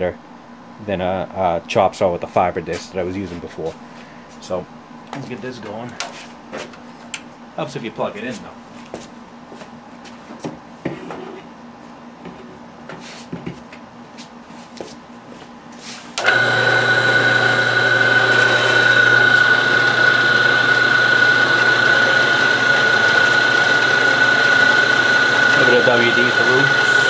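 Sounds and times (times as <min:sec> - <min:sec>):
bandsaw whining: 0:16.2 - 0:27.0.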